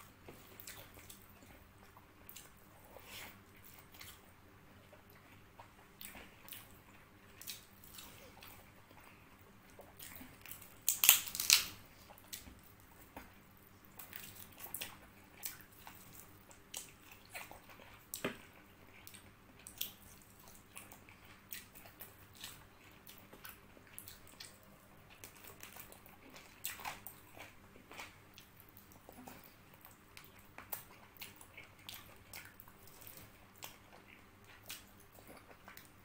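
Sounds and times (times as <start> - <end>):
wet chewing with lip-smacking: 0.0 - 36.0
meat torn apart by hand: 10.8 - 11.8.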